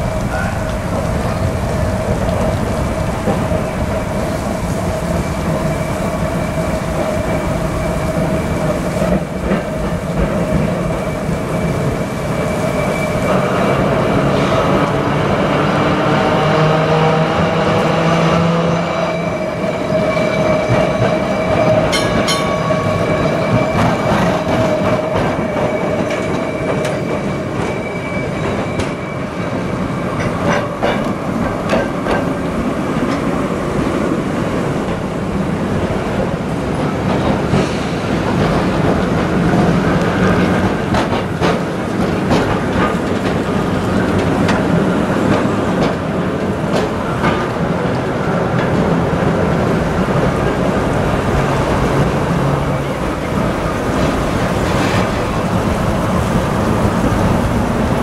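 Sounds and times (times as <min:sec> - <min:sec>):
tram rolling rumble: 0:00.0 - 0:58.0
wheels clicking over rail joints: 0:36.7 - 0:50.5.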